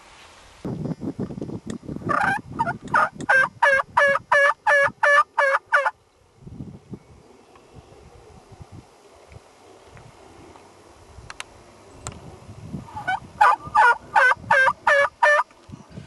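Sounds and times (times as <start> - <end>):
wild turkey yelping: 2.1 - 6.0, 12.9 - 15.4.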